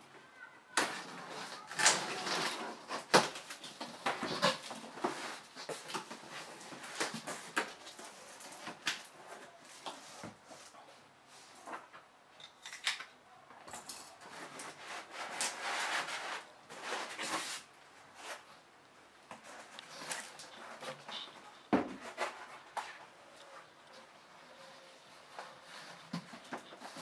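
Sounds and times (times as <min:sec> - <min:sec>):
cardboard scraping and sliding: 0:00.8 - 0:08.6, 0:14.4 - 0:18.5, 0:19.4 - 0:23.1.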